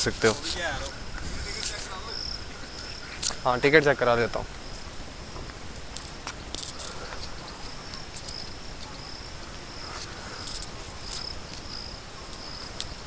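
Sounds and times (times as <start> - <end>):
high-pitched insect chirring: 0.2 - 4.8.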